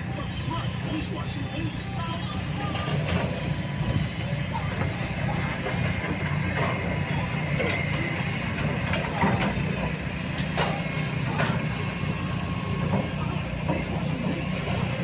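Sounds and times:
engine rumbling: 0.0s - 15.0s.

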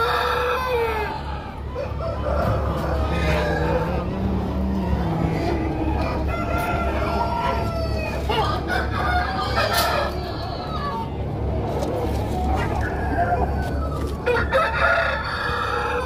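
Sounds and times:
chickens calling and clucking: 0.0s - 16.0s
steady low hum: 1.1s - 9.3s.

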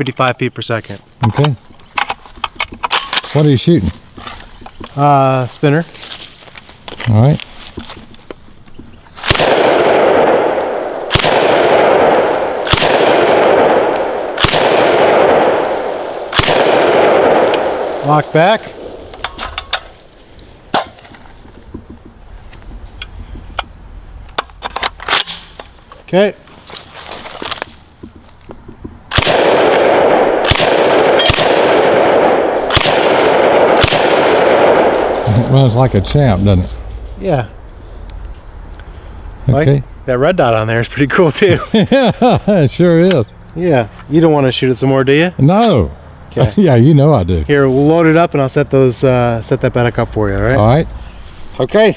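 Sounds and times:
shotgun shots: 9.2s - 20.0s, 29.1s - 37.0s.

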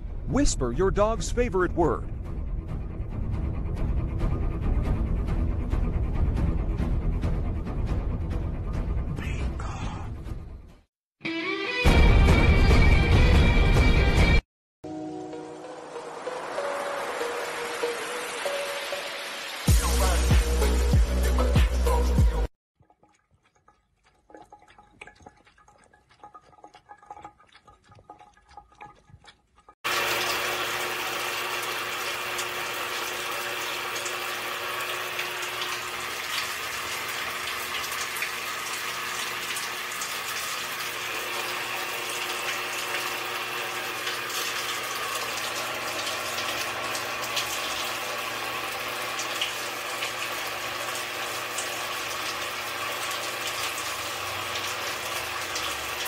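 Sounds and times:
shower head spraying water: 29.9s - 56.0s.

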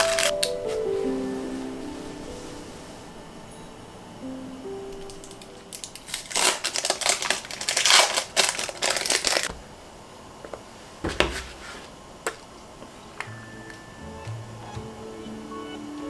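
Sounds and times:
plastic packaging crinkling: 0.0s - 0.9s, 5.0s - 9.5s.

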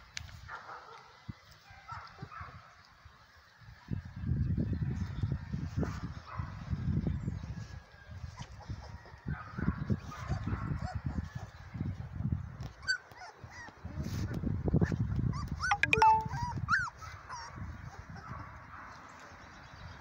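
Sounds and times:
puppies whimpering and yipping: 12.8s - 18.3s.

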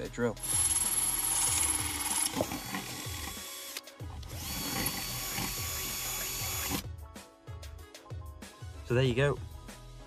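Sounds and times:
power drill grinding through metal: 0.4s - 6.8s.

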